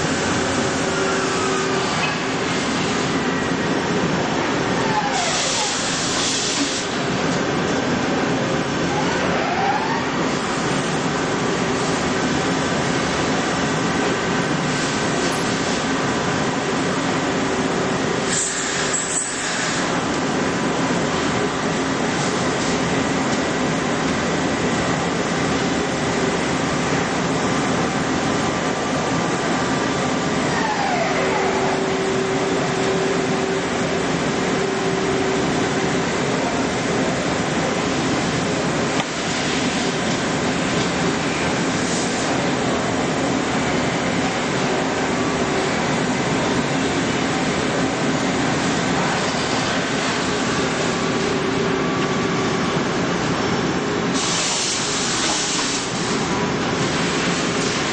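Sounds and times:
lathe spindle whine: 0.0 - 7.2, 22.8 - 54.2
coolant hiss: 5.2 - 7.1, 18.2 - 20.0, 54.1 - 57.9.

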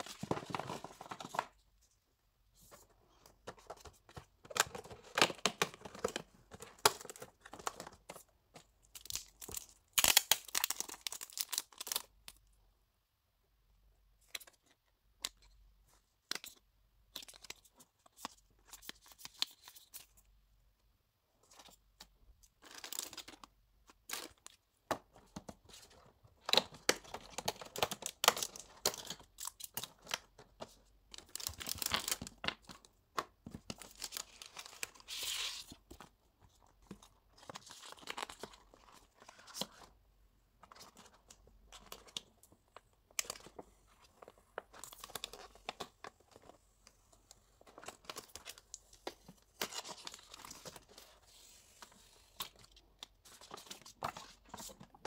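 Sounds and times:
paper and card rustling: 0.0 - 1.9, 25.1 - 40.0, 40.6 - 55.0.

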